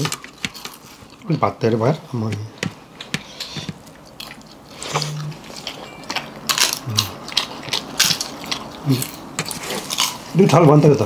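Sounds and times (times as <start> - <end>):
chewing and lip-smacking: 2.9 - 10.6.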